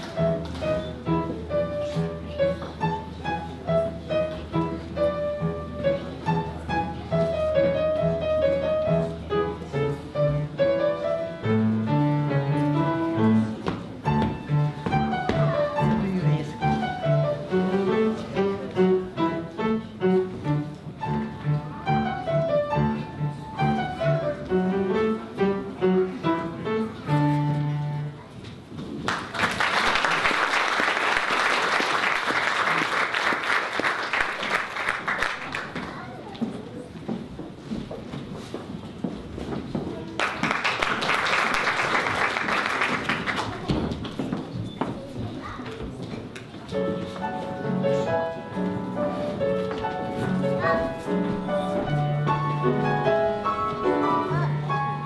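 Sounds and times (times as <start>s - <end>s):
upright piano piece: 0.0s - 36.3s, 46.7s - 55.0s
audience applause: 29.1s - 35.9s, 40.2s - 43.7s.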